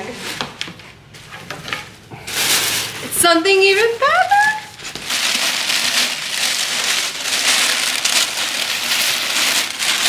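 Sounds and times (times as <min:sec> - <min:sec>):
tissue paper rustling: 0:02.3 - 0:10.0.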